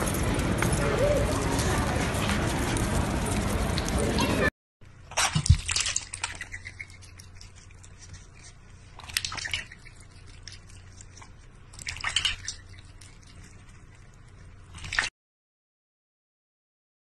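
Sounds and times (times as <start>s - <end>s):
cat lapping water from bowl: 5.1s - 15.1s.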